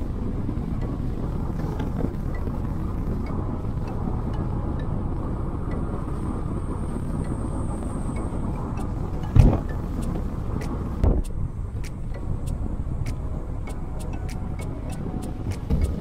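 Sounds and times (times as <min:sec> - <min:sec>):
car engine and road noise: 0:00.0 - 0:16.0
light ticks: 0:07.2 - 0:16.0
short thumps: 0:09.2 - 0:09.8.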